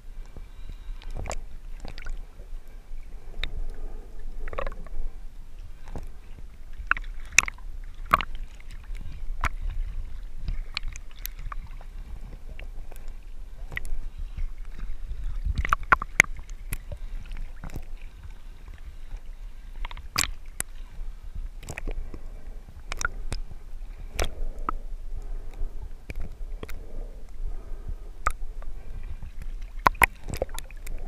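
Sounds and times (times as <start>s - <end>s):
underwater water rumble: 0.0s - 31.0s
sharp clicks and crackles: 15.5s - 17.0s, 19.8s - 20.7s, 22.8s - 23.5s, 29.8s - 31.0s.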